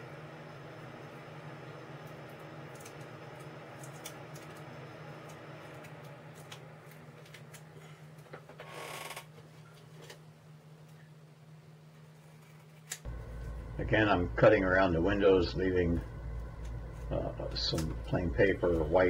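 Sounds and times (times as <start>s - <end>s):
steady low hum: 0.0s - 8.6s, 9.2s - 19.0s.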